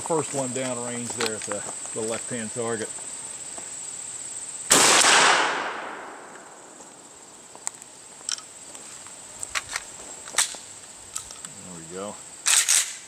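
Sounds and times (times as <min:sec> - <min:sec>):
shotgun shot with echo: 0:04.7 - 0:06.3.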